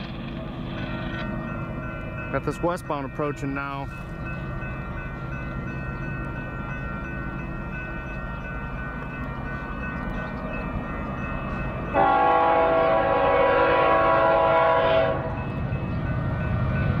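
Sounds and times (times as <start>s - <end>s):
train rumble: 0.0s - 17.0s
train air horn blast: 12.0s - 15.4s.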